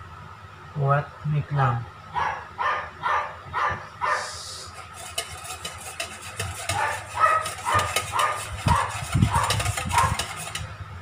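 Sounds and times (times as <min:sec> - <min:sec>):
dog yapping: 0:02.1 - 0:04.3, 0:06.7 - 0:10.3
whisk beating in metal bowl: 0:04.6 - 0:10.8.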